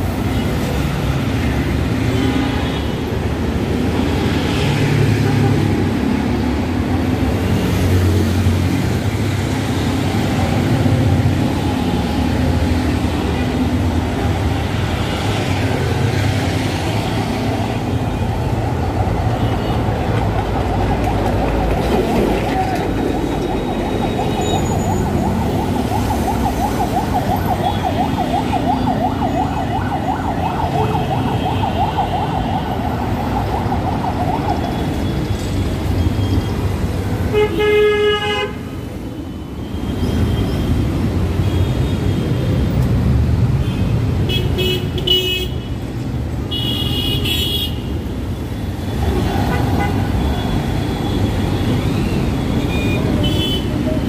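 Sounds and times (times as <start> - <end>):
road traffic passing: 0.0 - 54.0
wavering siren: 20.2 - 35.2.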